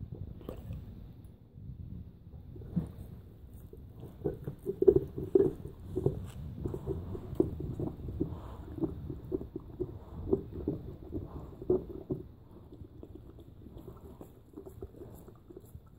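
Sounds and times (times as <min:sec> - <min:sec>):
dog gnawing on a bone: 0:04.0 - 0:15.9.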